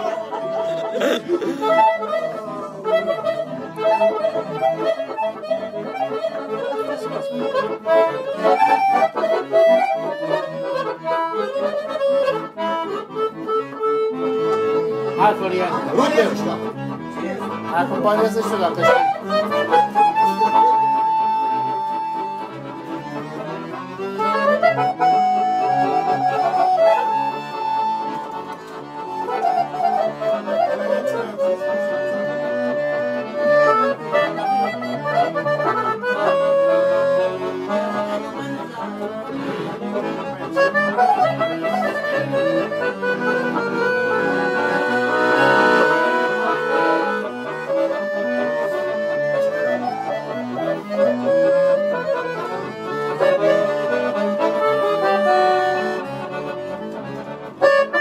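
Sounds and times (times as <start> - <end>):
accordion playing fast party music: 0.0 - 58.0.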